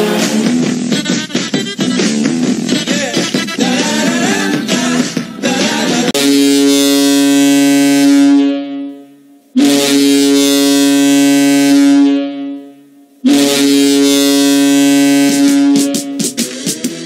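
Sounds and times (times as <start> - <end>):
arena goal horn blasts: 6.2 - 16.4.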